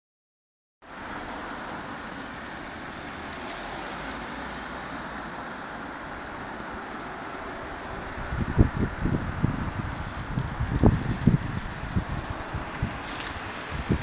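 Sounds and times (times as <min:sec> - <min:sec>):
street ambience hiss: 0:00.8 - 0:14.0.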